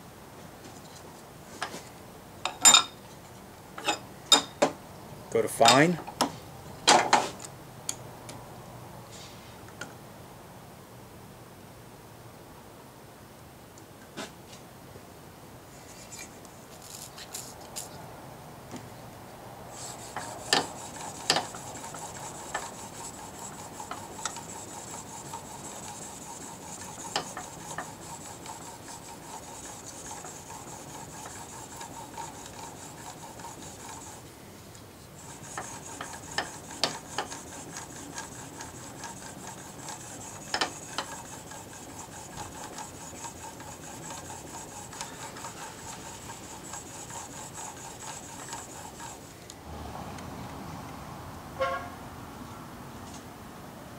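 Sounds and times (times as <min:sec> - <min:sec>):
blade scraping on sharpening plate: 0:19.8 - 0:34.2, 0:35.2 - 0:49.2.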